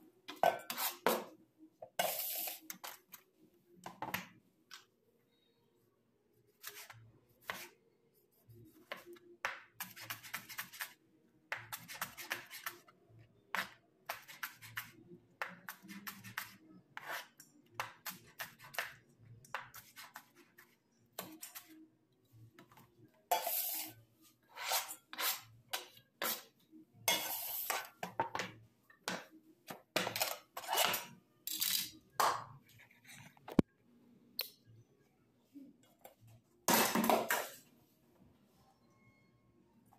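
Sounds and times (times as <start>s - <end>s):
knife scraping: 0.6s - 1.2s, 2.0s - 3.0s, 9.8s - 11.0s, 23.3s - 26.5s, 27.1s - 27.9s, 30.1s - 31.8s.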